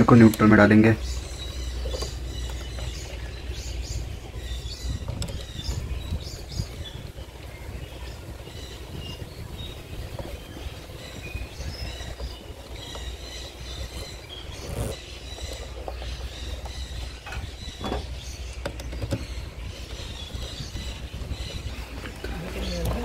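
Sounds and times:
bird chirps: 0:00.0 - 0:23.0.

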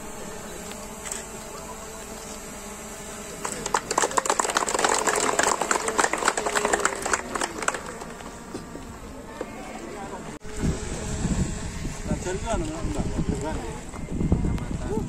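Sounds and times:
people clapping: 0:03.4 - 0:08.4.

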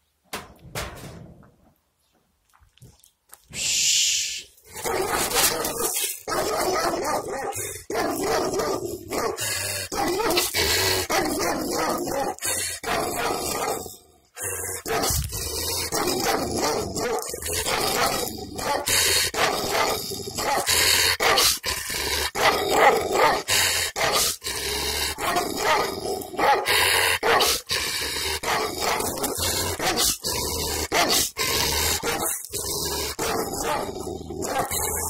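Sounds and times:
dog barking loudly: 0:04.8 - 0:09.4, 0:16.2 - 0:21.5, 0:22.4 - 0:24.3, 0:25.2 - 0:27.6, 0:33.2 - 0:35.0.

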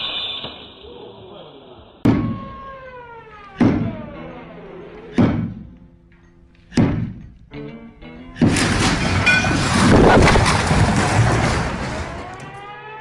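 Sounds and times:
falling ringing tone: 0:00.0 - 0:05.0.

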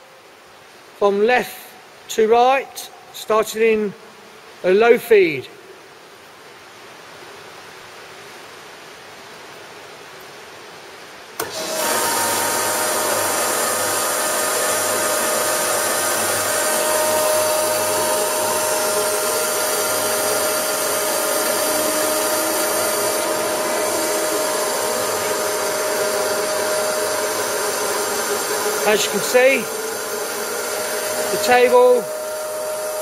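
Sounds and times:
machine hiss whine and hum: 0:00.0 - 0:33.0
machine feed drive click: 0:11.4 - 0:13.4.

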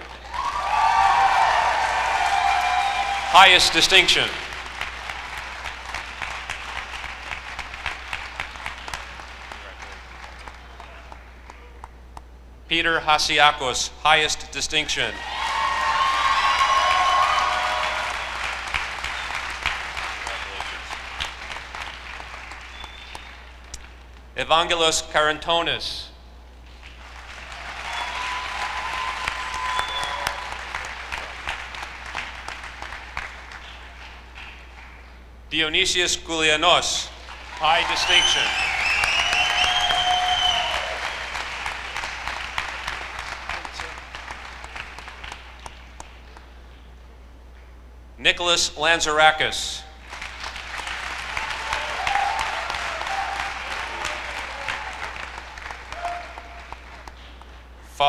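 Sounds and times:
audience applauding: 0:00.0 - 0:12.0, 0:15.2 - 0:24.0, 0:26.8 - 0:35.0, 0:37.2 - 0:46.4, 0:50.0 - 0:57.5.

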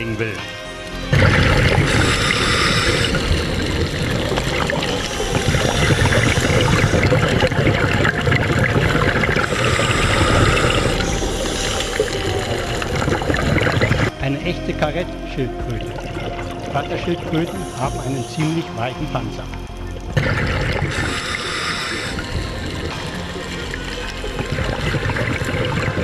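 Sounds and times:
underwater rush of water: 0:01.1 - 0:14.2, 0:15.6 - 0:26.0
regulator breathing hiss: 0:01.8 - 0:07.4, 0:09.4 - 0:13.8, 0:20.9 - 0:22.6.

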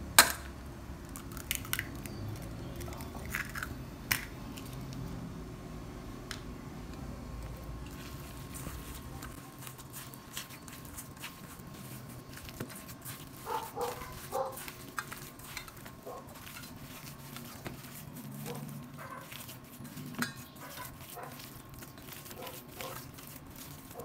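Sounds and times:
hands kneading raw meat: 0:01.0 - 0:05.0, 0:07.4 - 0:24.0.

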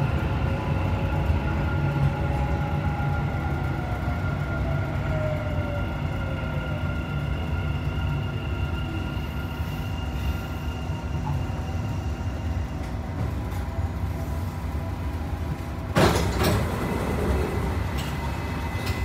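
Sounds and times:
train rumble with motor whine: 0:00.0 - 0:19.0.

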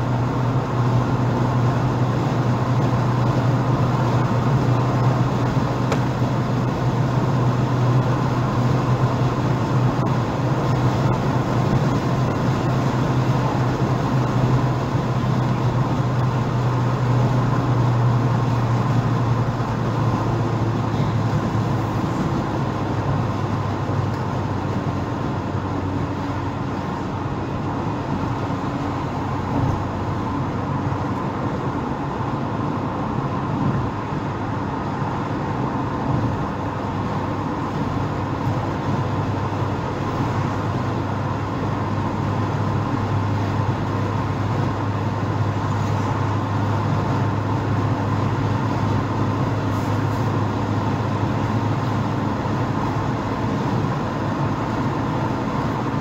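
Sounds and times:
low engine hum: 0:00.0 - 0:56.0
tyres hissing on wet road: 0:36.9 - 0:56.0.

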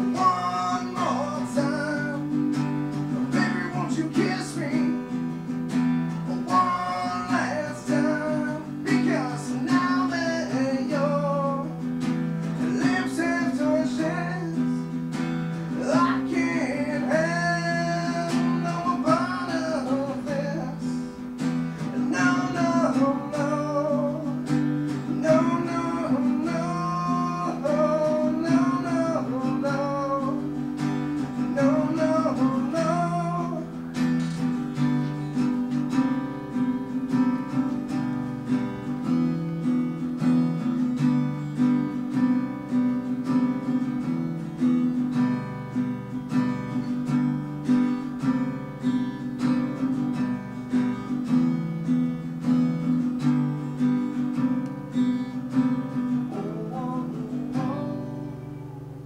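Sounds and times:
man singing: 0:00.0 - 0:37.9, 0:55.4 - 0:59.0
acoustic guitar strumming: 0:00.0 - 0:59.0.

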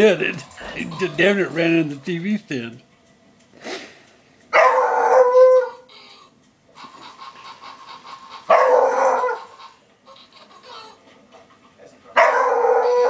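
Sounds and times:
rapid even pulsing: 0:00.0 - 0:02.8
dog barking: 0:04.6 - 0:05.8, 0:08.5 - 0:09.5, 0:12.2 - 0:13.0.

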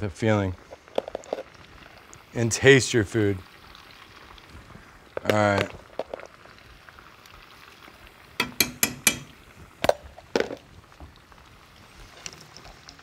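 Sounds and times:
rice sizzling in hot oil: 0:00.0 - 0:13.0
knocks: 0:08.4 - 0:09.4.

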